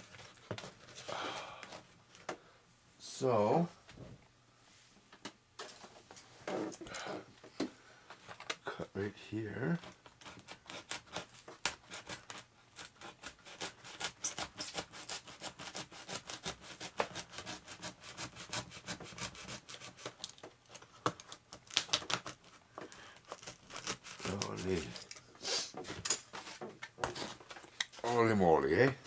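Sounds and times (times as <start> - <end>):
hand tool scraping foam: 9.7 - 20.2, 23.3 - 25.0.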